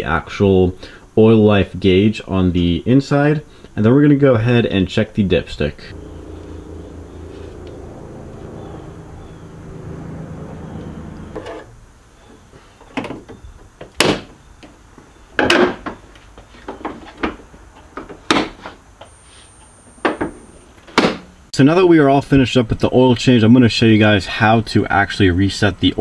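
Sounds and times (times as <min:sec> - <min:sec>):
steady low hum: 0:05.4 - 0:12.1.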